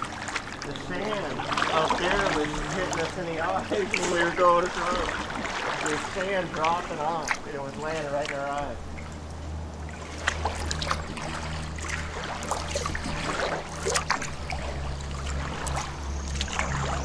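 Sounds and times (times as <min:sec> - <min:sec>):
paddle splashes: 0:00.0 - 0:17.0
steady low hum: 0:00.0 - 0:17.0.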